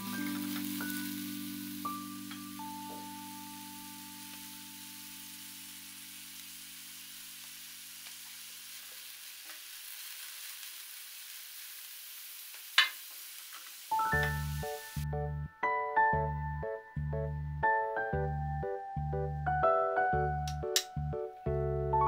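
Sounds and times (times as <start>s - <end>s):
held music chord: 0.0s - 5.8s
vegetables sizzling in frying pan: 0.0s - 15.1s
background music with bass line: 14.1s - 22.0s.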